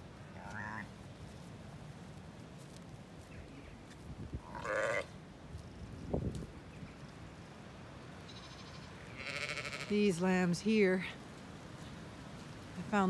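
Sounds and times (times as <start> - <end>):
sheep bleating: 0.3 - 0.9, 4.4 - 5.1, 8.3 - 10.0
wind rumble on microphone: 3.2 - 7.3.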